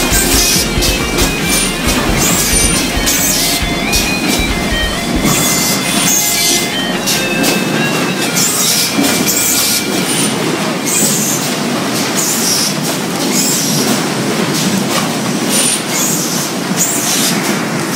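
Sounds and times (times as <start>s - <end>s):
machine clatter: 0.0s - 13.0s.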